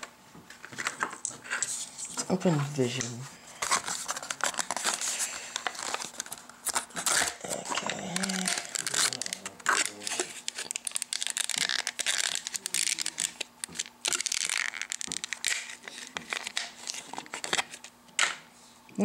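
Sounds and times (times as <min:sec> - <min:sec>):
plastic packaging crinkling: 0:02.8 - 0:18.0.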